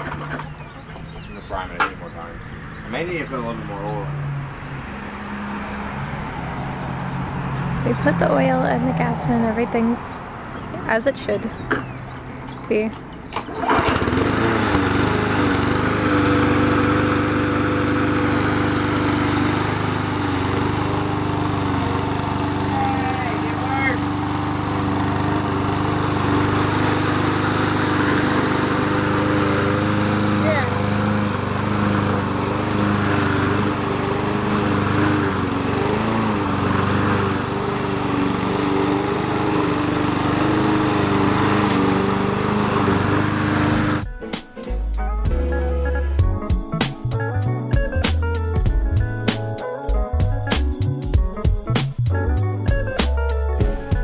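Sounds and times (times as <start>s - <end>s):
lawn mower engine running: 0.0s - 3.2s, 11.6s - 44.0s.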